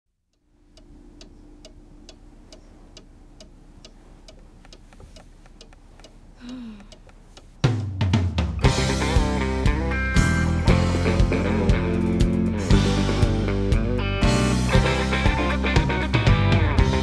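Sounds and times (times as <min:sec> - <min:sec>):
steady ticking: 0:00.2 - 0:08.0.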